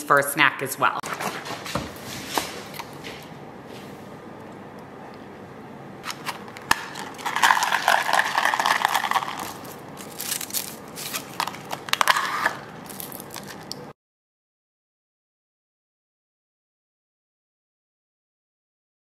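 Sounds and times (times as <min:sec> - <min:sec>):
ice cubes rattling in plastic cup: 0:06.1 - 0:13.7.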